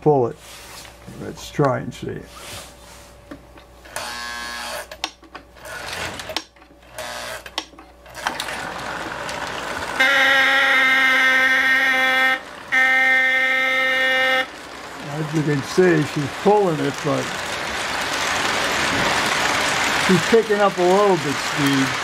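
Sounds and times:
locomotive electric horn: 0:08.7 - 0:16.6.

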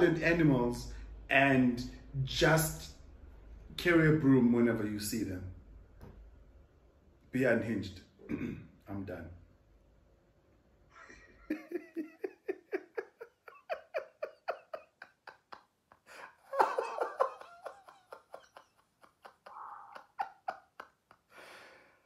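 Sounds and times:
man laughing hard: 0:11.5 - 0:21.3.

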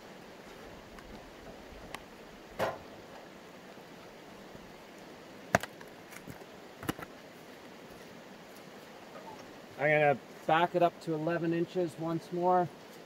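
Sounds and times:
wooden log knocking on steel frame: 0:02.6 - 0:02.9.

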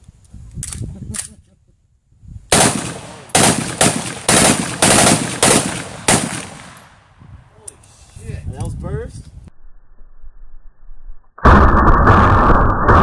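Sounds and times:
slowed gunshots: 0:02.5 - 0:06.8, 0:11.4 - 0:13.0.

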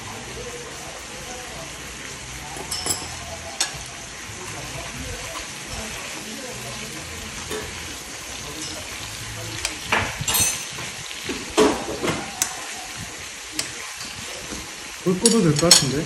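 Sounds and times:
beef sizzling in a frying pan: 0:00.0 - 0:16.0
metal utensil scraping a pan: 0:02.5 - 0:12.7.

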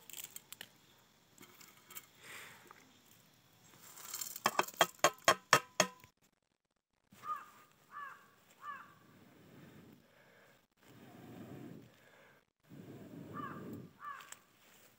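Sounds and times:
crow cawing: 0:07.2 - 0:09.0, 0:13.4 - 0:14.4.

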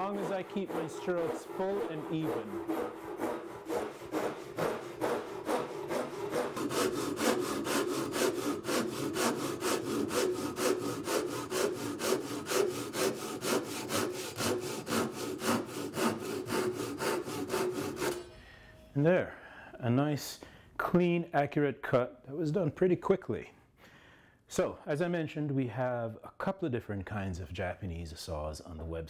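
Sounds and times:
hand saw cutting wood: 0:00.0 - 0:18.4.

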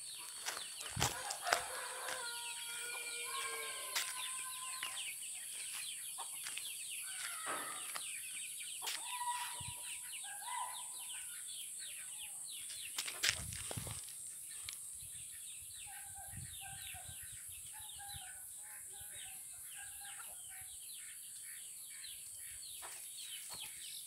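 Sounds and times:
chickens clucking: 0:00.2 - 0:08.1.

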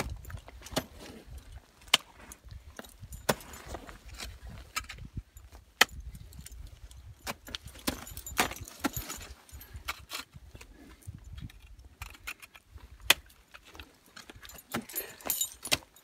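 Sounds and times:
metal climbing gear clinking: 0:00.0 - 0:16.0
ice axe and crampon strikes: 0:03.2 - 0:03.9.

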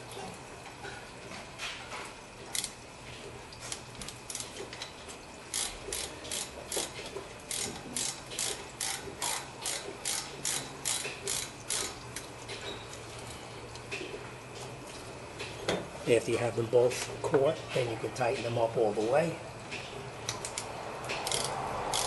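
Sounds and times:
ratchet wrench clicking: 0:05.5 - 0:06.9, 0:07.5 - 0:11.9, 0:20.3 - 0:22.0.

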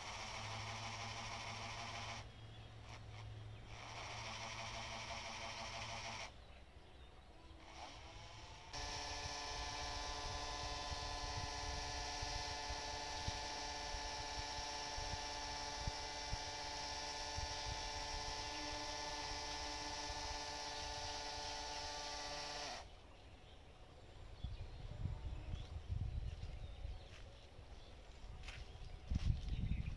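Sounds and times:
pump motor whining: 0:00.0 - 0:06.4, 0:07.5 - 0:22.9.

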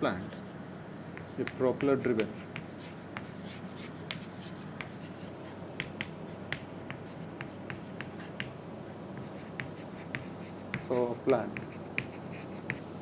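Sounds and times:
low room hum: 0:00.0 - 0:13.0
chalk tapping and scratching: 0:01.2 - 0:13.0.

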